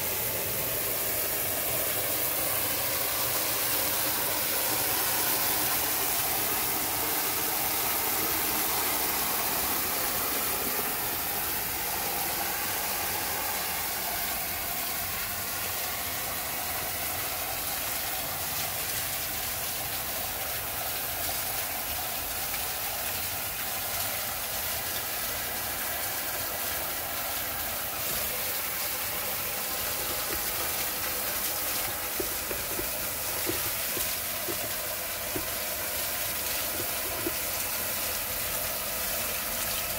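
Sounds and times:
water pouring into bucket: 0.0s - 39.9s.

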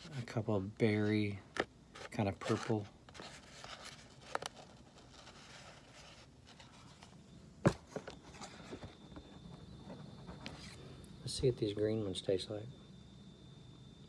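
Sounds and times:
faint high-pitched whine: 0.0s - 14.0s.

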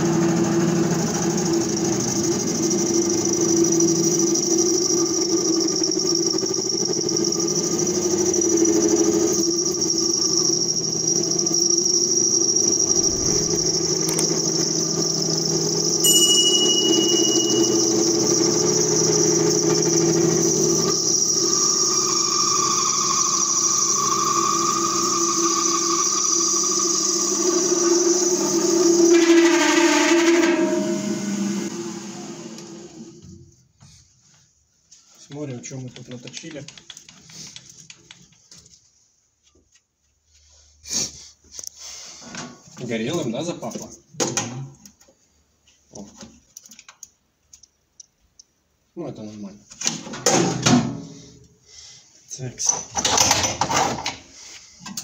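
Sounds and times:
lathe whining: 0.0s - 33.2s
short chime: 16.0s - 18.6s.

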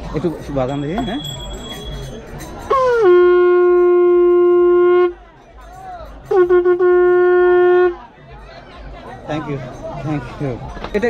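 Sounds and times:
conch shell blast: 2.7s - 5.2s, 6.2s - 8.0s.

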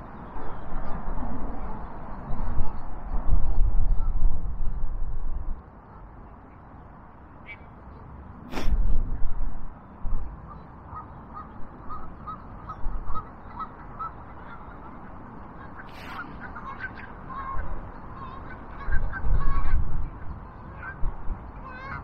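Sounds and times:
geese honking: 10.9s - 19.8s.

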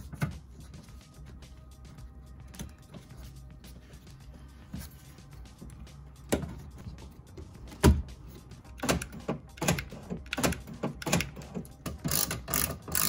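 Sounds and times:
socket ratchet clicking: 8.8s - 13.0s.

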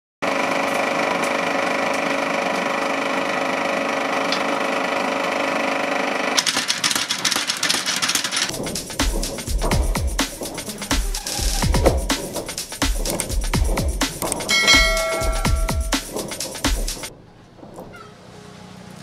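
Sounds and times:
motor hum: 0.2s - 19.0s
power hammer blows on steel: 5.5s - 17.2s.

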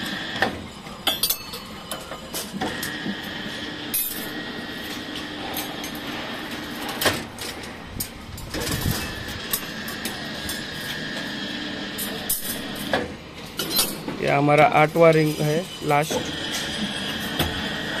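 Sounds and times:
machine motor whining: 14.1s - 18.0s.

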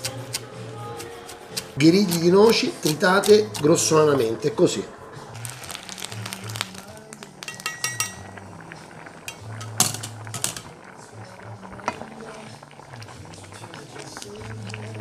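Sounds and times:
broth pouring: 1.8s - 15.0s
ladle clinking on metal strainer: 7.4s - 8.3s.

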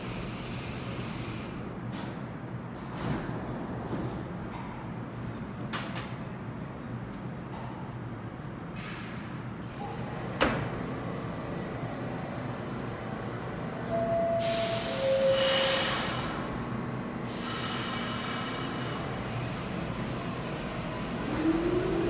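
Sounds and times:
train hum: 0.0s - 22.0s.

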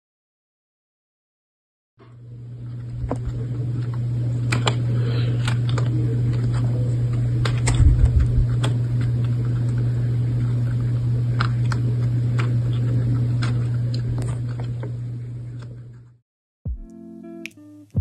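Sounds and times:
low hum: 2.0s - 16.2s.

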